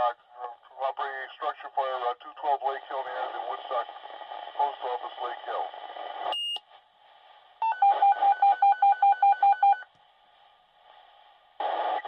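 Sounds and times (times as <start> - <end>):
radio hiss: 0.0 - 6.3, 10.4 - 12.0.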